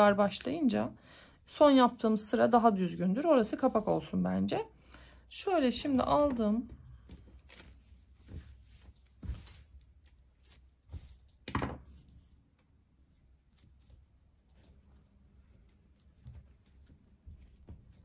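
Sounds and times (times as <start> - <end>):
soft knocks and rustles of handling: 5.8 - 18.0.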